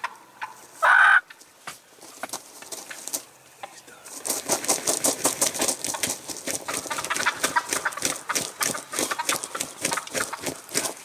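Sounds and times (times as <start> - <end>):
turkey wings flapping: 4.0 - 11.0.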